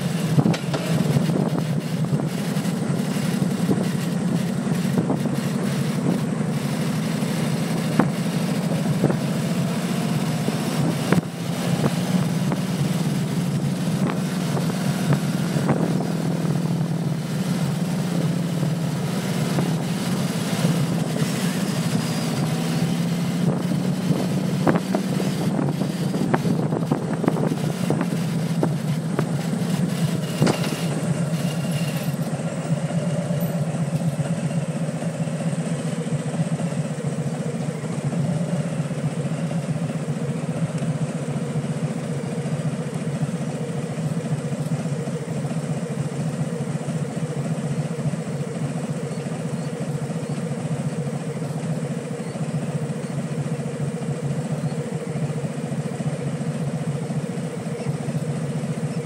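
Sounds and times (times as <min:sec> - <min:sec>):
motorcycle engine running: 0:00.0 - 0:59.0
wind buffeting microphone: 0:23.4 - 0:29.3.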